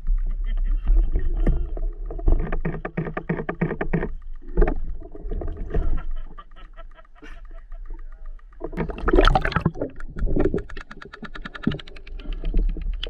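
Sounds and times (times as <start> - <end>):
rapid even clicking: 0.0 - 13.0
water splashing and sloshing: 8.3 - 13.0.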